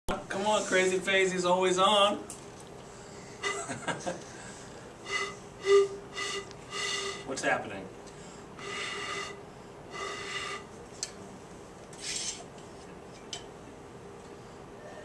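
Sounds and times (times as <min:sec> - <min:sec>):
faint steady tone: 0:05.0 - 0:07.3.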